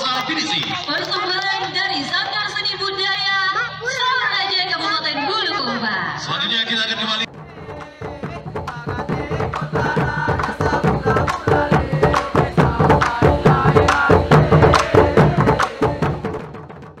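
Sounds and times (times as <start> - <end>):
busy drumming: 7.3 - 17.0.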